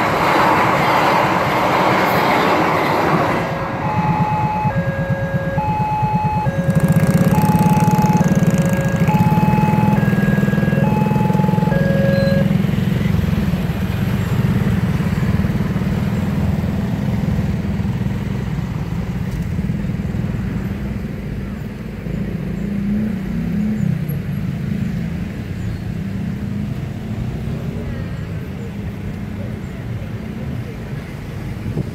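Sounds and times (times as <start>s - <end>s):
motorcycle engines pulling away: 3.7s - 20.4s
level crossing alarm beeps: 3.8s - 12.6s.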